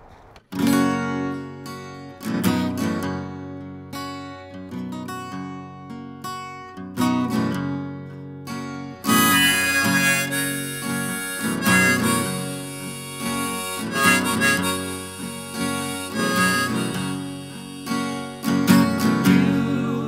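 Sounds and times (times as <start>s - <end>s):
acoustic guitar: 0.0s - 20.0s
harmonica melody: 8.9s - 20.0s.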